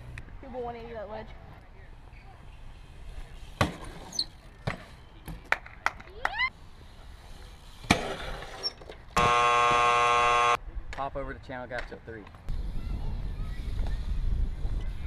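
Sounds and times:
bike clacks and knocks on concrete: 0:03.6 - 0:06.2
loud electronic buzzer: 0:09.2 - 0:10.6.

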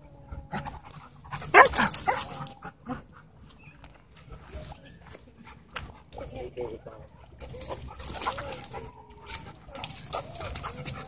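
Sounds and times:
dog yelping: 0:01.4 - 0:02.6
dogs scuffling: 0:07.4 - 0:11.0.

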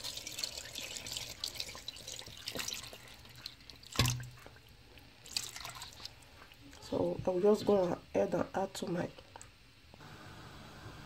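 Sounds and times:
water pouring into metal pot: 0:00.0 - 0:06.5.

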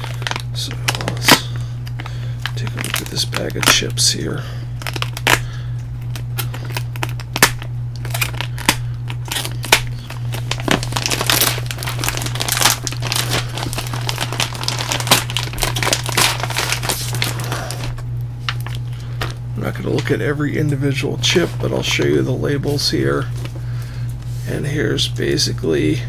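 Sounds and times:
plastic bag crinkling: 0:00.0 - 0:20.2
steady low hum: 0:00.0 - 0:26.0.

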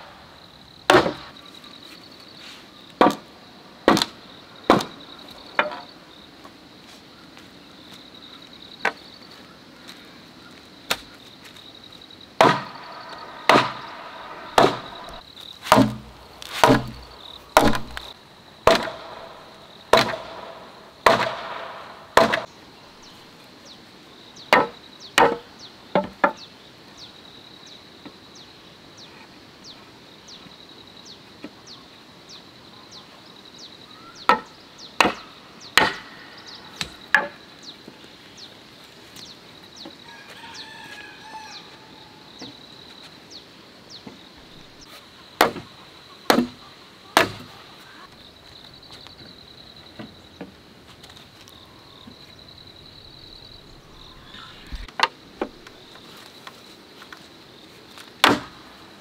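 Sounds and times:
high insect drone: 0:00.0 - 0:59.0
hammer blows on timber: 0:13.5 - 0:18.1.

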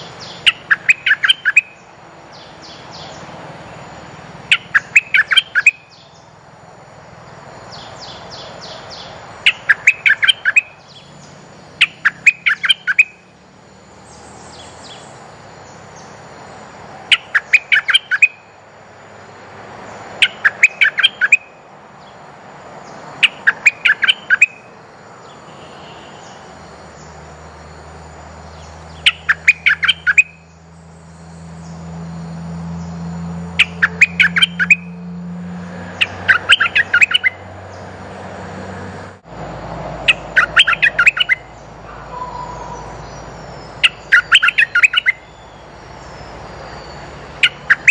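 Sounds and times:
bird lure call bursts: 0:00.4 - 0:01.8, 0:04.5 - 0:06.0, 0:09.4 - 0:10.8, 0:11.8 - 0:13.2, 0:17.1 - 0:18.4, 0:20.2 - 0:21.5, 0:23.2 - 0:24.7, 0:29.0 - 0:30.5, 0:33.5 - 0:35.0, 0:36.0 - 0:37.4, 0:40.1 - 0:41.5, 0:43.8 - 0:45.3, 0:47.4 - 0:47.9.

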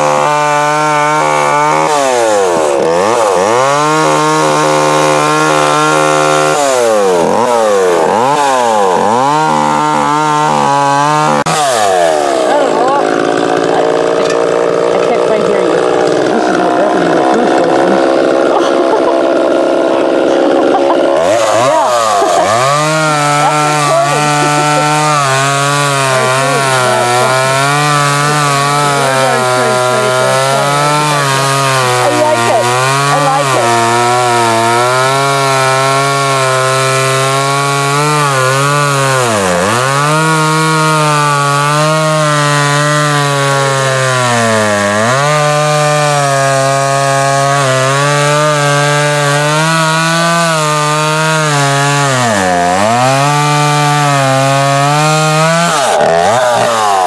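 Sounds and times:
chainsaw cutting wood: 0:00.0 - 0:57.0.

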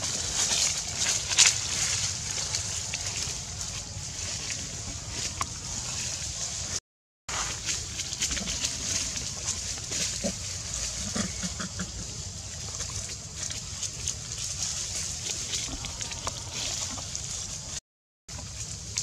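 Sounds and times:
monkey grunting: 0:11.0 - 0:12.0.

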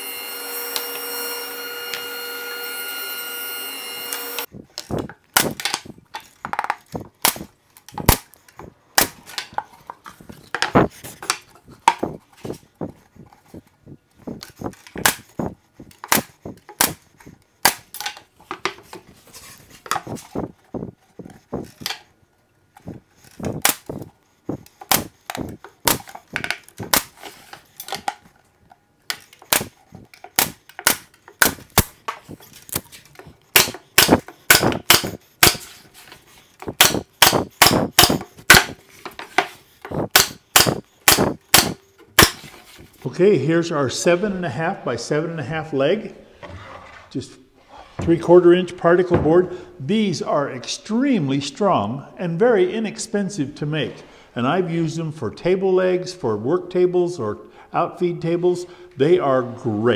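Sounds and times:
nail gun firing: 0:05.3 - 0:05.8, 0:07.2 - 0:08.3, 0:08.9 - 0:09.5, 0:15.0 - 0:15.3, 0:16.0 - 0:17.0, 0:17.6 - 0:18.2, 0:23.6 - 0:24.0, 0:24.9 - 0:26.2, 0:26.8 - 0:27.2, 0:29.1 - 0:32.0, 0:33.5 - 0:35.7, 0:36.8 - 0:38.8, 0:40.0 - 0:42.5.

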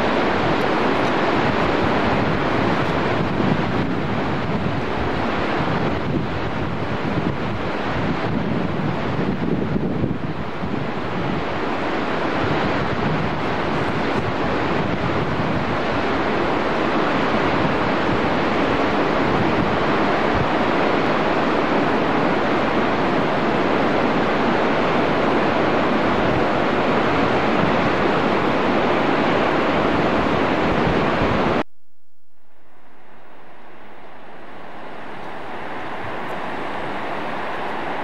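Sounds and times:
loud rushing noise: 0:32.6 - 0:38.0.

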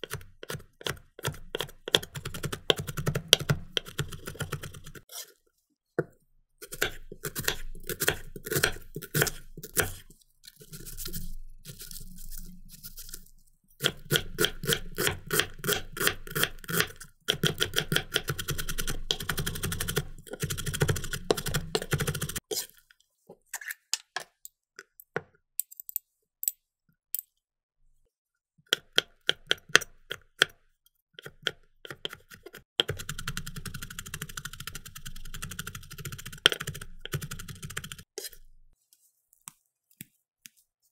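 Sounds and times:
knife crunching through onion: 0:06.6 - 0:19.4, 0:20.2 - 0:22.8.

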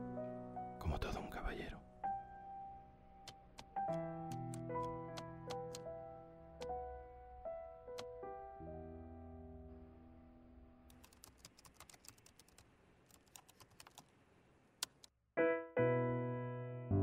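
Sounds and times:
music: 0:00.0 - 0:10.9, 0:15.4 - 0:17.0
laptop keyboard typing: 0:03.2 - 0:05.9, 0:10.9 - 0:14.1
soft music chord: 0:04.0 - 0:10.8.

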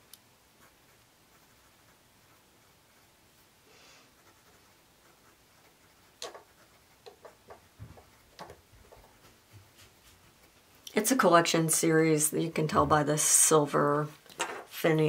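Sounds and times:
pen nib scratching paper: 0:00.5 - 0:11.5
pen nib ticking: 0:04.1 - 0:09.2.

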